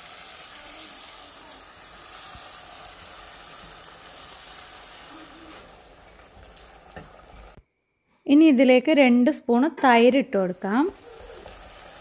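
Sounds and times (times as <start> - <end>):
gravy sizzling in oil: 0.0 - 7.6, 10.4 - 12.0.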